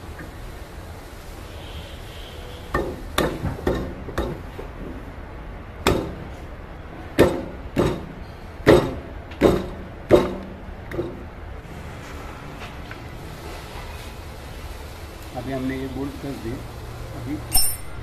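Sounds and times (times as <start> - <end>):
metal knocks and clunks: 2.8 - 5.0, 5.8 - 6.3, 7.2 - 11.3.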